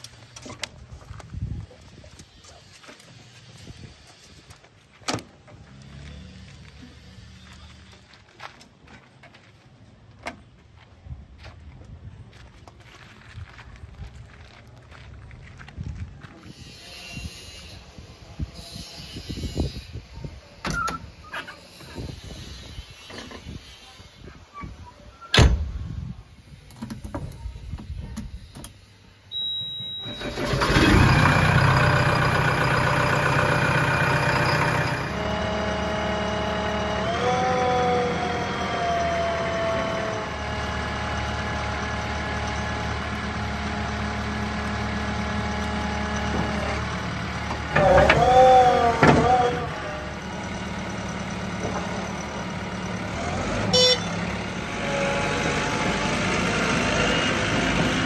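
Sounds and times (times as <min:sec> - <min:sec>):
short beep: 0:29.3 - 0:30.4
diesel engine cranking and running: 0:30.0 - 0:58.0.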